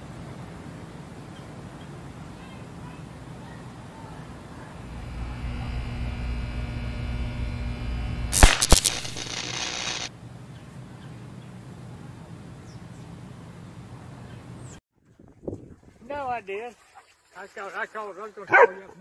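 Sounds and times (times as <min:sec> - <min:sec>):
steady electrical buzz: 0:04.7 - 0:10.1
sharp electrical cracks: 0:04.8 - 0:10.1
sizzling hiss: 0:04.8 - 0:10.1.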